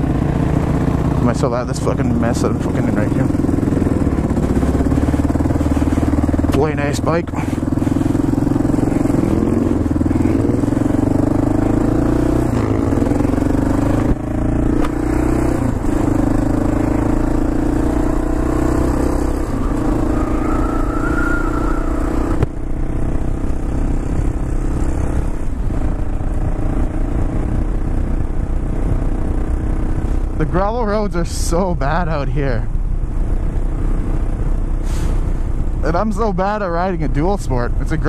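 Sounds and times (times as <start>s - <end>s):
motorcycle engine running: 0.0s - 38.0s.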